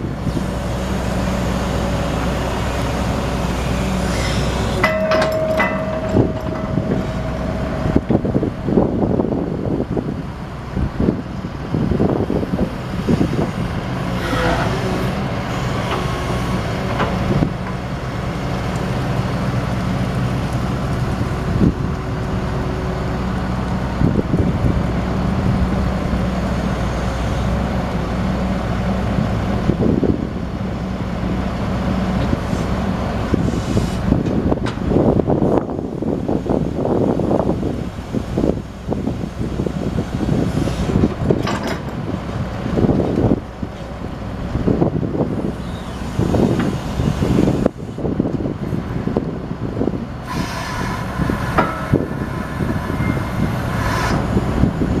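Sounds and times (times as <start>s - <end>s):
diesel engine running: 0.0s - 55.0s
brief squeals: 4.0s - 4.8s.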